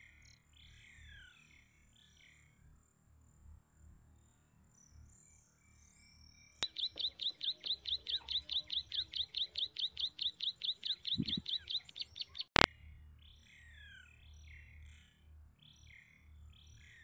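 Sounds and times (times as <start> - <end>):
bird chirping rapidly: 6.6 - 12.7
click: 11.2 - 12.7.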